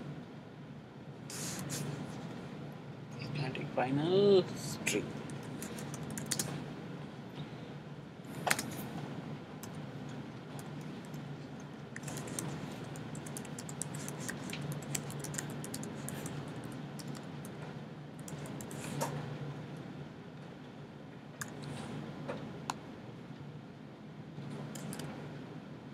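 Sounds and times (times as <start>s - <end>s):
low steady hum: 0.0s - 25.9s.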